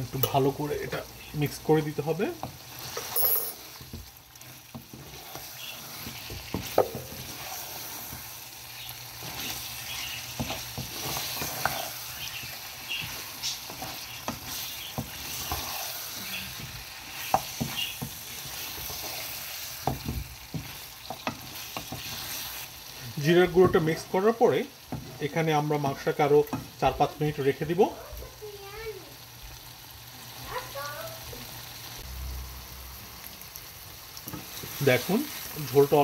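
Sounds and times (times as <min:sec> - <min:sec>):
meat sizzling in a frying pan: 0:00.0 - 0:36.0
wooden spatula scraping a pan: 0:00.2 - 0:27.0.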